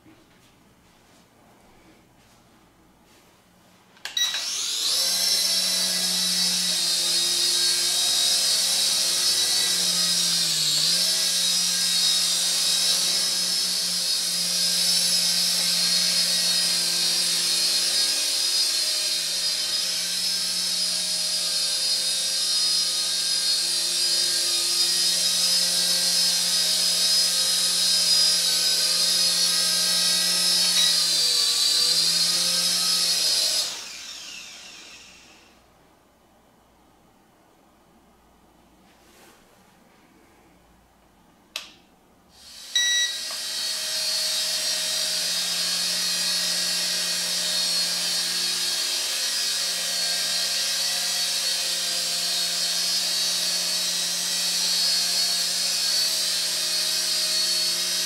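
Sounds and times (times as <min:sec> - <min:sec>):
toy helicopter rotors whining: 0:04.2 - 0:35.6.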